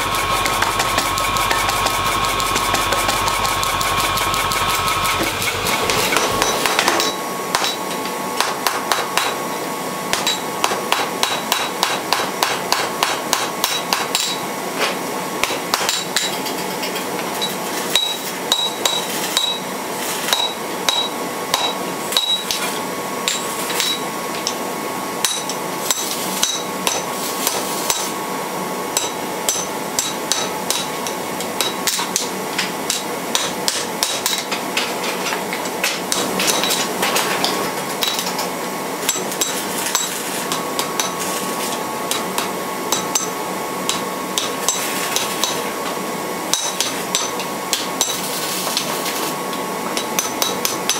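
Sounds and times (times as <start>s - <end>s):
hammer striking steel on anvil: 0.0s - 9.4s, 10.1s - 14.4s, 15.4s - 16.4s, 17.9s - 19.7s, 20.3s - 22.6s, 23.2s - 24.6s, 25.2s - 28.1s, 29.0s - 34.6s, 35.8s - 38.3s, 39.0s - 41.2s, 42.1s - 45.7s, 46.5s - 48.2s, 50.0s - 50.9s.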